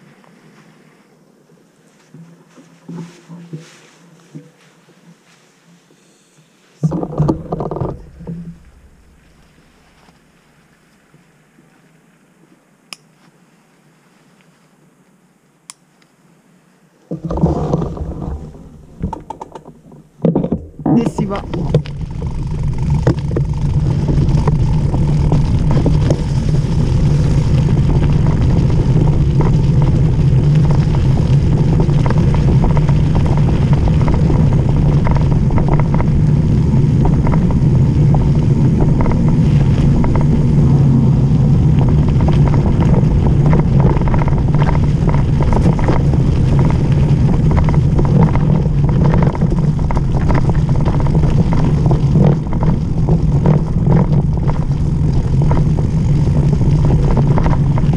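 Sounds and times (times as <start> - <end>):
wind rush on microphone: 6.8 - 10.4, 17.1 - 57.9
bike rattles and clicks: 17.1 - 57.9
tyre rumble on gravel: 17.2 - 19.1, 19.7 - 57.9.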